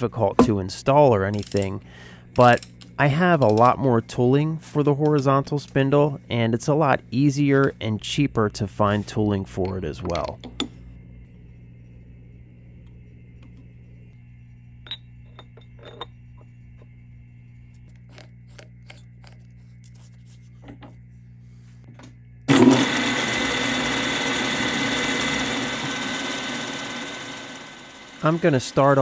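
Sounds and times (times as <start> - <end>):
low steady hum: 0.0 - 29.0
milling machine spindle running: 22.5 - 29.0.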